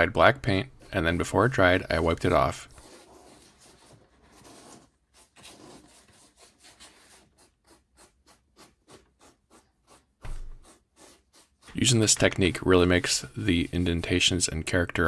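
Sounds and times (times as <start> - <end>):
paintbrush scrubbing foam: 2.7 - 15.0.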